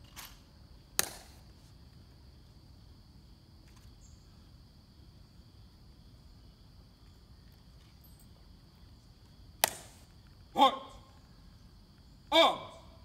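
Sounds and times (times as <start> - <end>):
faint high insect drone: 0.0 - 13.0.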